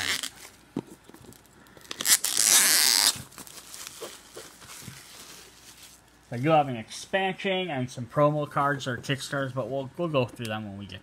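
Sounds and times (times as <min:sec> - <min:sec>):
shrink wrap ripping: 0:00.0 - 0:00.5, 0:01.3 - 0:06.0
plastic crinkling: 0:00.0 - 0:06.5.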